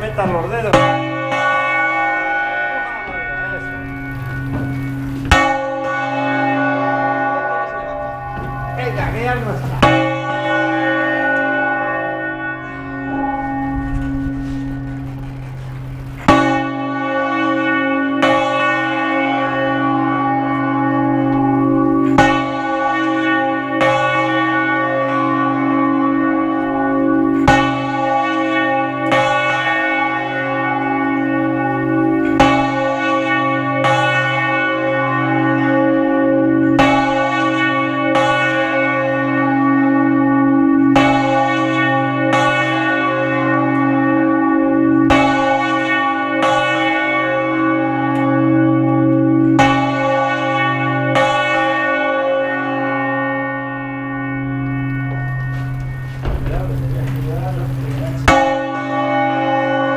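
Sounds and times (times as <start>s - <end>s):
church bell clapper strikes: 0.0s - 59.9s.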